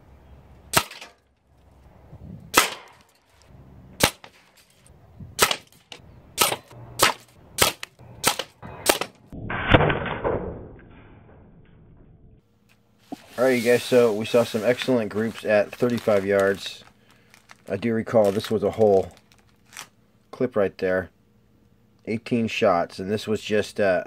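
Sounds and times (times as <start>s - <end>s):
air rifle shots: 2.5s - 3.0s, 4.0s - 4.4s, 5.4s - 5.8s, 6.4s - 10.2s.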